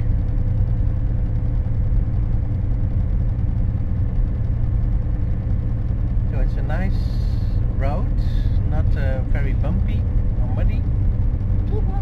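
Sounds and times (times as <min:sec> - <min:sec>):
engine and road noise in cabin: 0:00.0 - 0:12.0.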